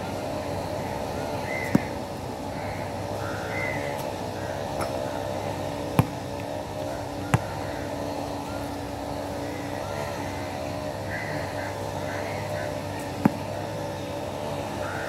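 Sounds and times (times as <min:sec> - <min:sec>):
basketball bouncing on court: 0:01.7 - 0:02.0, 0:05.8 - 0:07.7, 0:13.2 - 0:13.6.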